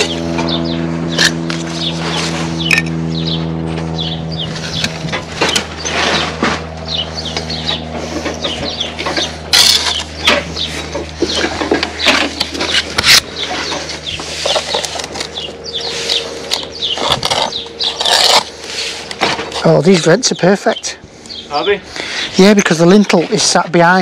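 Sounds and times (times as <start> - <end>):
steady low hum: 0.0 - 24.0
trowel scraping mortar: 12.3 - 19.8.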